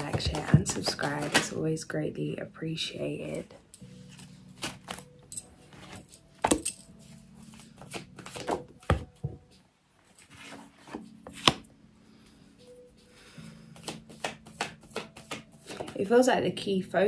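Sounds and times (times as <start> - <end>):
cards being shuffled: 0.0 - 1.6, 4.1 - 5.1, 7.5 - 9.1, 10.2 - 11.6, 13.8 - 16.0
cards snapping: 7.8 - 8.8, 13.8 - 16.0.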